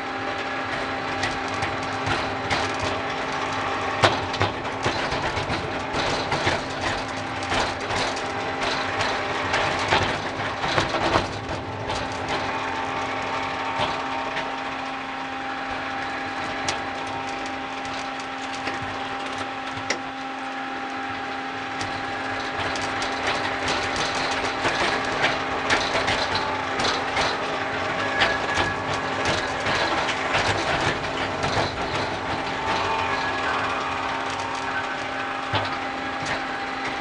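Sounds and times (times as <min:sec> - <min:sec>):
small car rattling: 0:00.0 - 0:20.4, 0:21.0 - 0:37.0
motor hum: 0:00.0 - 0:37.0
wheels clattering over rail joints: 0:00.0 - 0:37.0.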